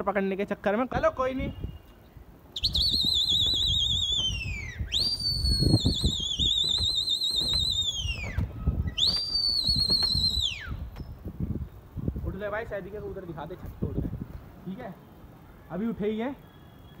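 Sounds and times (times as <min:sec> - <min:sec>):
man whistling warbling whistles: 0:02.6 - 0:11.1.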